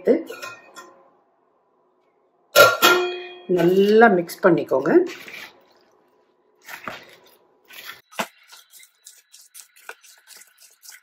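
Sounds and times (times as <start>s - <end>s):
hands squelching wet marinade: 5.0s - 11.0s.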